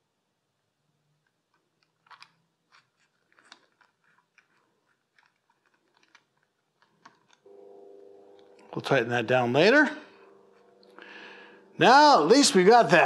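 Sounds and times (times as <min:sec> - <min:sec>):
small metal parts clicking: 0:01.5 - 0:07.5.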